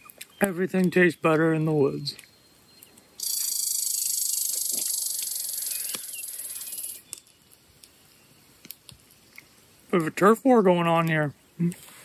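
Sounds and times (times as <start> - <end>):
squirrel rattling chatter: 3.2 - 7.4.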